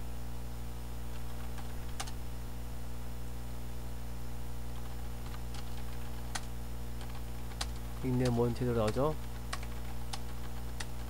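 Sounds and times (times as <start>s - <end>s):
electrical mains hum: 0.0s - 11.0s
computer clicks: 1.2s - 2.2s, 4.8s - 11.0s.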